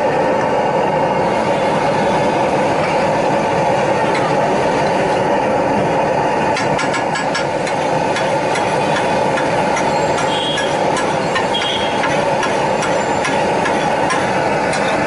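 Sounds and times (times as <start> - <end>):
steel spatula scraping griddle: 6.6 - 15.0.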